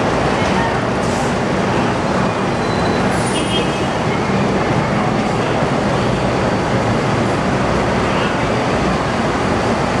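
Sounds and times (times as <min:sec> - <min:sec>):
bus engine idling: 0:00.0 - 0:10.0.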